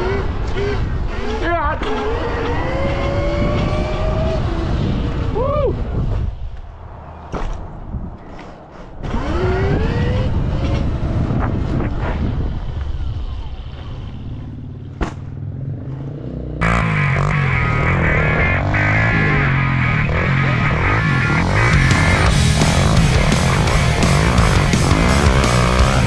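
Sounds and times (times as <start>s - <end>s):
rushing road noise: 0.0s - 26.0s
music: 20.4s - 26.0s.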